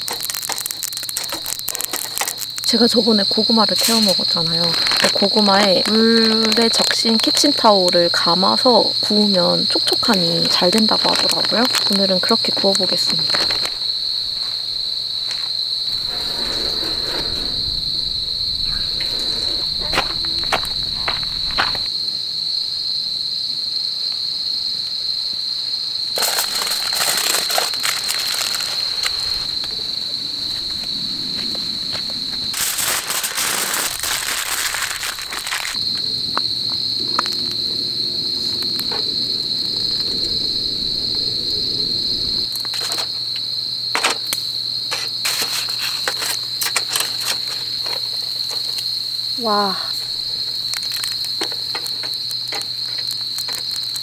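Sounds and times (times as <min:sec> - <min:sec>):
paper towel and foil crinkling: 0:00.0 - 0:02.8, 0:26.2 - 0:29.4, 0:32.6 - 0:35.8
crickets chirring: 0:00.0 - 0:54.0.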